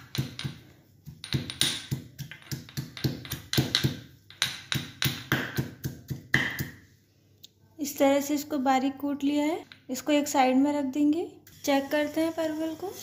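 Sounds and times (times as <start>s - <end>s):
stone pestle pounding in mortar: 0.0s - 6.8s.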